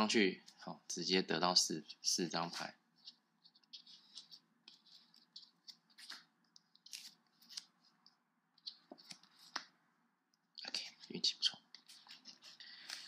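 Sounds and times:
playing cards rustling and clicking: 0:01.8 - 0:09.8, 0:10.7 - 0:13.0.

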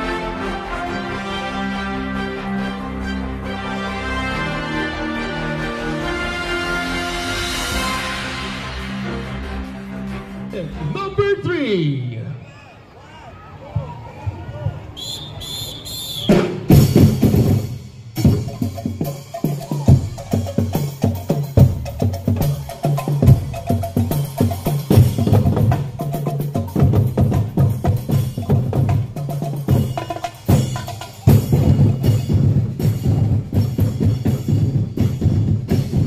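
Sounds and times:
cymbal: 0:06.4 - 0:10.4
drum band playing dance beat: 0:16.2 - 0:36.0.

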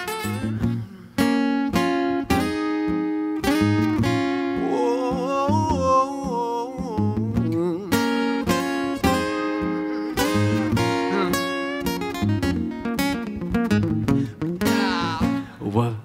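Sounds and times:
acoustic guitar chords strummed: 0:00.0 - 0:15.6
person singing wordlessly: 0:04.4 - 0:08.5, 0:10.3 - 0:11.7, 0:14.6 - 0:16.0.

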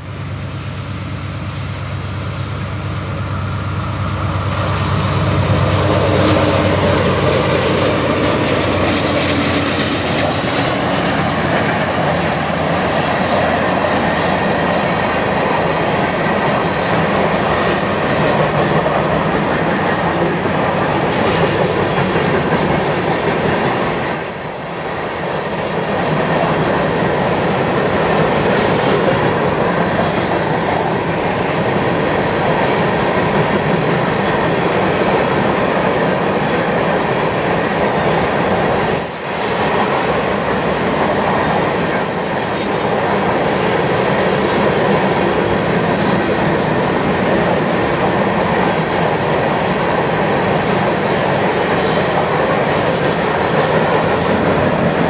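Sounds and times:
diesel locomotives passing: 0:00.0 - 0:55.0
train wheels rumbling on rail: 0:00.0 - 0:55.0
high wheel squeal: 0:01.2 - 0:19.1, 0:22.4 - 0:28.3, 0:37.4 - 0:43.1.

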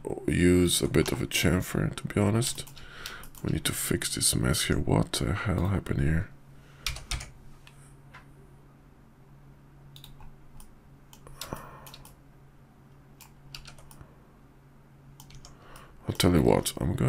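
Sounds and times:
faint low hum: 0:00.0 - 0:17.0
keyboard and mouse clicks: 0:02.5 - 0:03.6, 0:06.8 - 0:07.3, 0:09.9 - 0:12.2, 0:13.2 - 0:14.0, 0:15.2 - 0:16.4.

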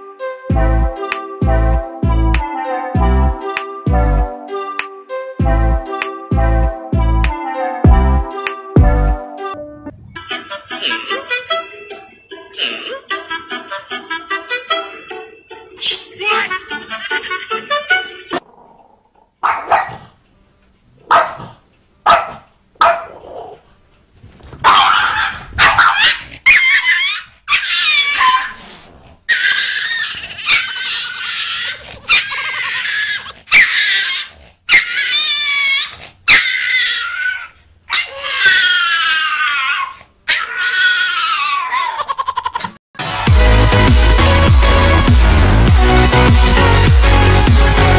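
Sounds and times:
small dog barking: 0:19.4 - 0:20.1, 0:21.0 - 0:23.6, 0:24.6 - 0:26.7.

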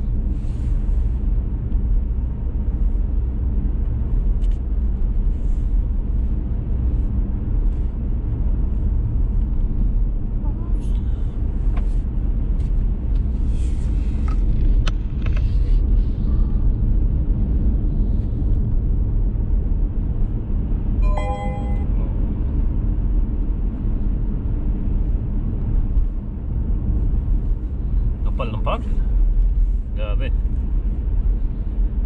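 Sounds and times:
car road and engine rumble: 0:00.0 - 0:32.0
short tone: 0:21.0 - 0:22.2.

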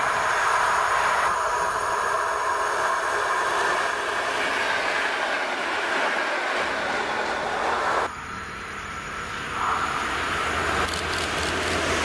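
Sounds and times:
electric train wheels rolling: 0:00.0 - 0:12.0.

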